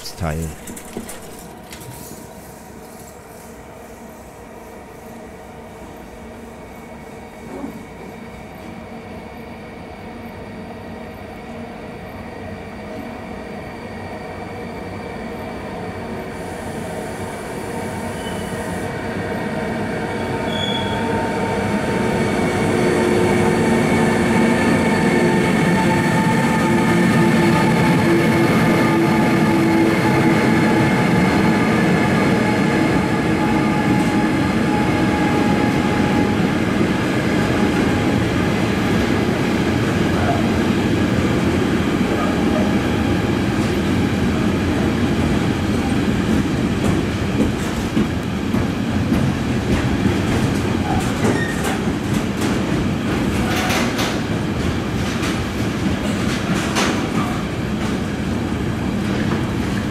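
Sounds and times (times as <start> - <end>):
wheels clicking over rail joints: 0.0 - 2.1
train wheels rumbling on rails: 0.0 - 8.8, 15.9 - 59.9
electric locomotive hum: 0.0 - 59.9.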